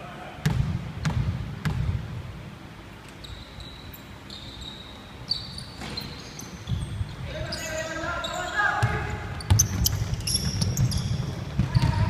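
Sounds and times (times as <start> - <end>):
basketball bouncing on hardwood floor: 0.4 - 2.0, 8.8 - 12.0
sneakers squeaking on wooden floor: 3.1 - 12.0.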